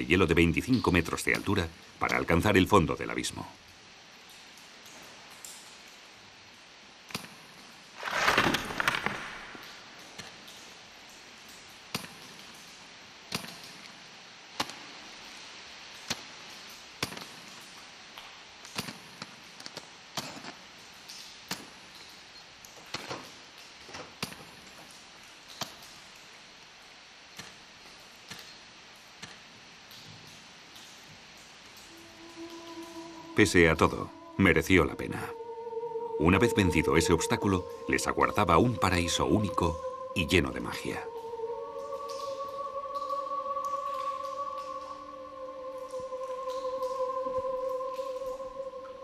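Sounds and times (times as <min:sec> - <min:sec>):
crunch of scraping ice: 0:08.0 - 0:09.4
ice axes striking ice: 0:08.0 - 0:09.7.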